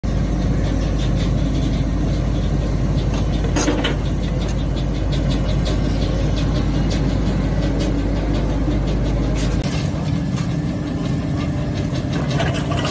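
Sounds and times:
excavator diesel engine rumbling: 0.0 - 12.9
bucket clatter: 11.9 - 12.9.

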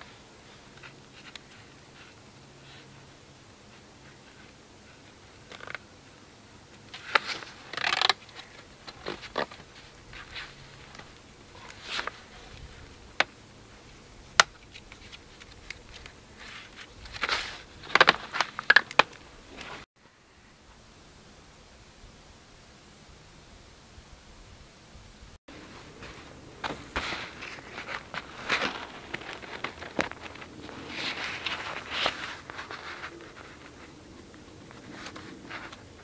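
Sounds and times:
wire scraping and rustling: 6.8 - 19.9, 25.5 - 36.0.

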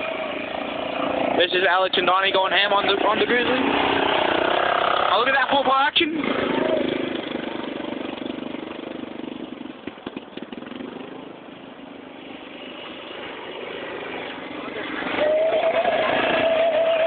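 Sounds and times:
quad engine revving: 0.0 - 11.0.

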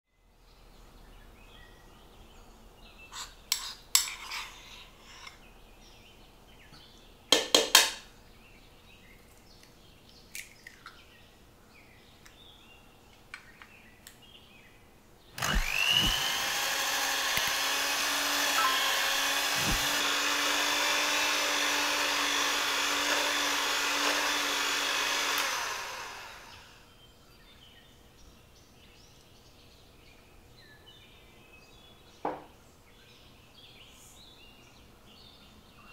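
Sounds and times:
kitchen knocks and clicks: 7.4 - 8.0
electric hand mixer humming: 15.4 - 26.8.

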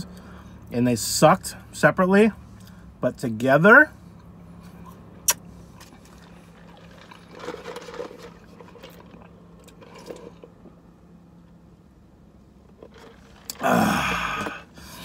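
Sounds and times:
low steady hum: 0.0 - 15.0
slurping through a straw: 5.7 - 10.5, 12.8 - 15.0.

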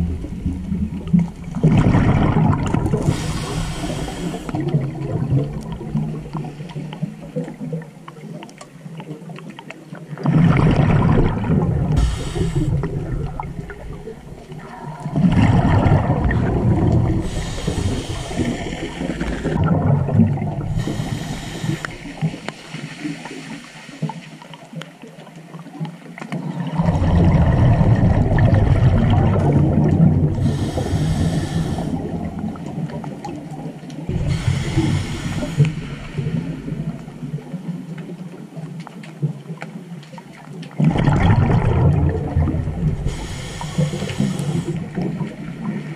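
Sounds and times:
bubbling underwater exhalations: 0.0 - 7.8, 10.2 - 22.5, 26.4 - 37.6, 40.8 - 45.9
hissing regulator inhales: 3.0 - 4.7, 12.0 - 12.9, 17.2 - 19.6, 20.7 - 23.9, 30.4 - 32.2, 34.1 - 37.0, 43.0 - 45.0.

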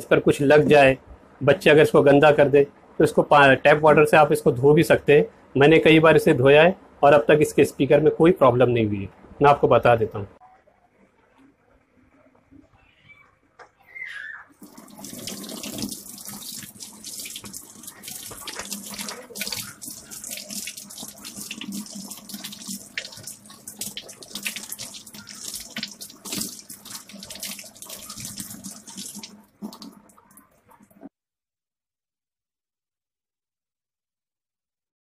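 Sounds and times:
kitchen tap turning on: 14.6 - 30.0
water splashing into metal sink: 14.6 - 31.1.

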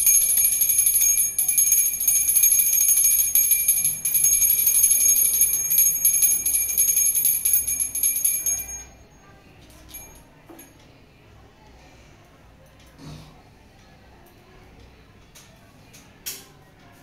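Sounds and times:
brass hand bell ringing rapidly: 0.0 - 8.9.

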